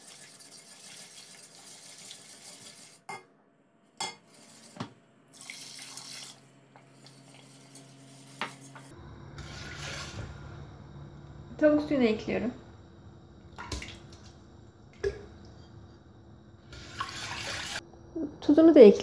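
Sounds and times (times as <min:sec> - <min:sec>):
whisk stirring liquid in a pot: 0:00.0 - 0:03.1
liquid sloshing: 0:16.8 - 0:17.8.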